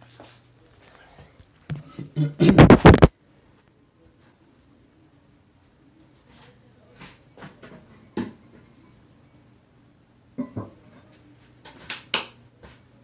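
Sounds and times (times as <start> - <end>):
fingers rubbing on microphone: 2.4 - 3.1.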